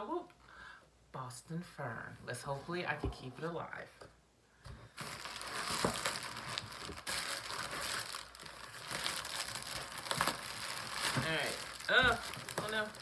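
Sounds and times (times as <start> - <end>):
bubble wrap crinkling: 4.9 - 13.0
bubble wrap crackles: 5.0 - 13.0.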